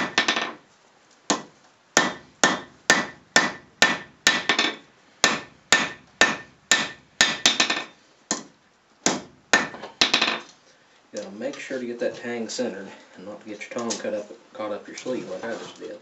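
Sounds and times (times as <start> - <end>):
hammer striking metal on anvil: 1.3 - 8.4.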